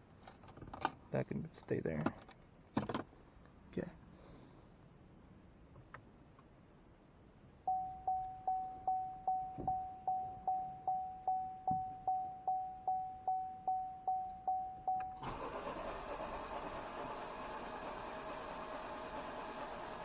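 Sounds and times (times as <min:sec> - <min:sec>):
dashboard warning chime: 0:07.7 - 0:15.8.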